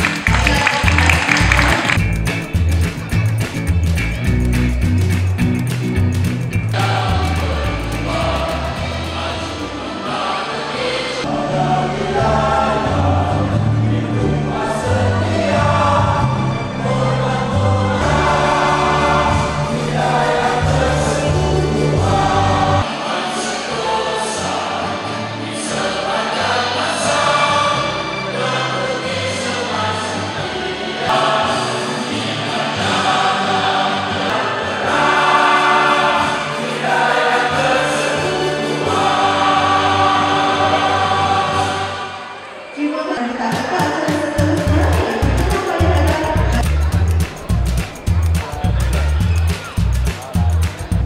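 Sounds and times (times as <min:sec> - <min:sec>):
chorus singing: 0:00.0 - 0:02.0, 0:06.7 - 0:51.0
sustained bass notes: 0:00.0 - 0:10.0, 0:11.3 - 0:22.8, 0:44.2 - 0:51.0
accompanying music: 0:00.0 - 0:51.0.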